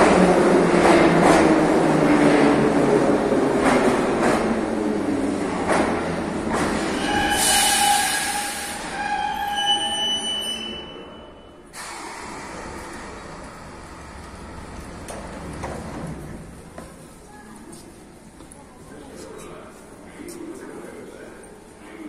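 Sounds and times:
train doors opening: 0:05.4 - 0:16.5
train brakes squealing: 0:06.9 - 0:12.2.

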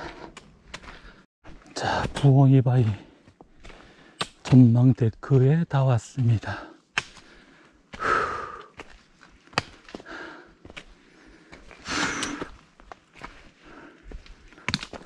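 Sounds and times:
heavy sighing breaths: 0:00.0 - 0:02.1, 0:06.5 - 0:09.0, 0:09.6 - 0:12.6.

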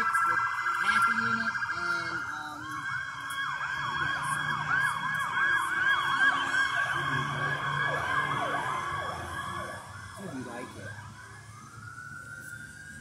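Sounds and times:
siren yelping: 0:00.0 - 0:13.0.

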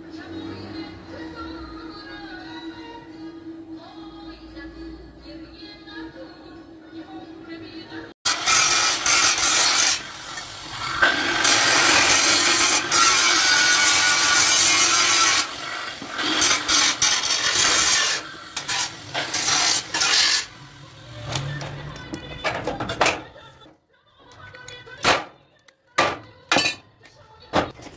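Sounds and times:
angle grinder cutting steel: 0:08.3 - 0:21.8
wire scraping on metal: 0:11.0 - 0:23.3.

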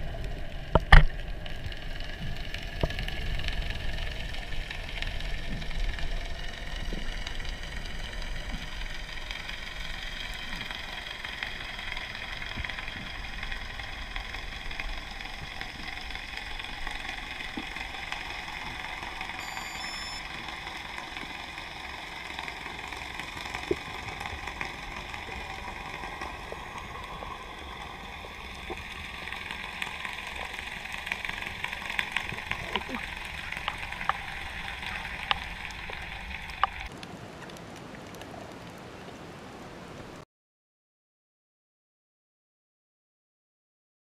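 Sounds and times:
distant boat engine drone underwater: 0:00.0 - 0:39.4
short high beeps: 0:19.4 - 0:20.2
faint clicks: 0:34.8 - 0:38.8.

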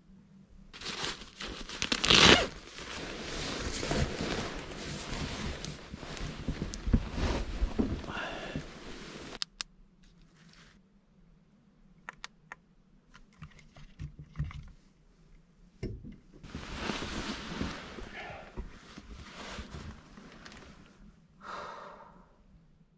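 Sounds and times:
rustling handling noise: 0:00.8 - 0:09.4, 0:10.0 - 0:10.8, 0:16.3 - 0:21.1.

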